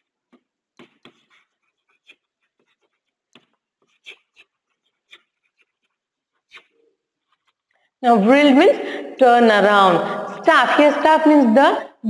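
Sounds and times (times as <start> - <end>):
chalk writing on a blackboard: 0.0 - 7.8.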